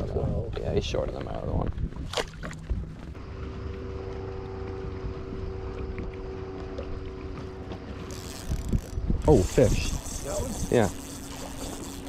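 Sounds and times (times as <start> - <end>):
wind rumble on microphone: 0.0 - 12.0
boat motor humming: 0.4 - 12.0.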